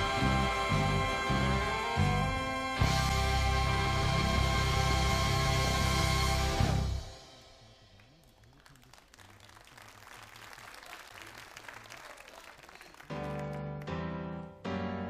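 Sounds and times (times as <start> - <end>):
live band music: 0.0 - 7.5
audience applause: 8.0 - 14.0
loud piano chords: 13.1 - 15.0.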